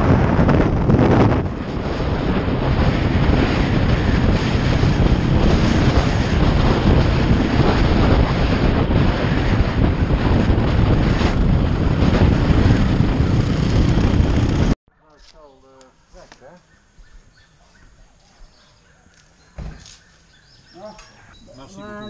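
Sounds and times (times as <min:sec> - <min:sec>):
motorcycle engine running: 0:00.0 - 0:14.8
wind buffeting microphone: 0:00.0 - 0:14.8.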